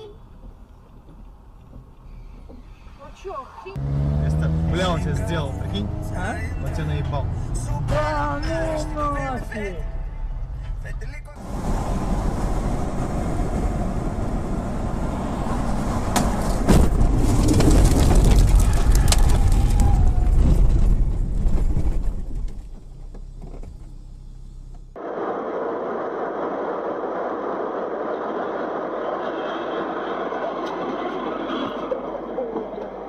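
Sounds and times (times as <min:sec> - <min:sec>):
car road noise: 0:00.0 - 0:33.0
car rumbling over field: 0:03.8 - 0:09.5, 0:10.4 - 0:30.5.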